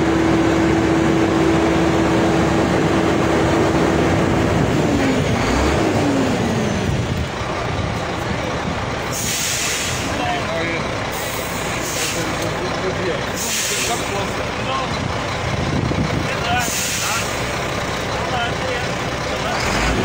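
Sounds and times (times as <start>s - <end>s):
diesel truck engine running: 0.0s - 20.0s
air brake hiss: 9.1s - 10.1s, 11.2s - 12.3s, 13.4s - 14.1s, 16.6s - 17.4s.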